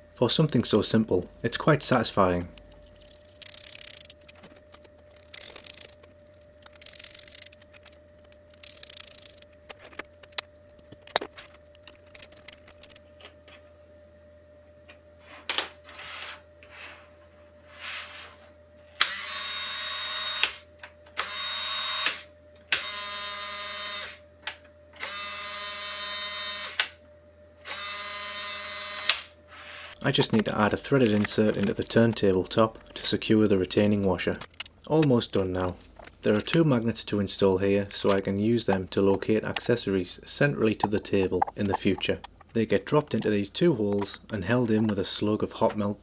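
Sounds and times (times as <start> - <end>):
small power tool running: 27.6 - 29.1.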